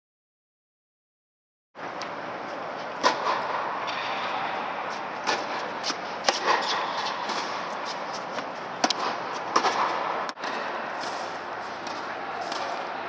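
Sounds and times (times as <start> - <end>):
tennis balls struck with rackets: 3.0 - 12.9.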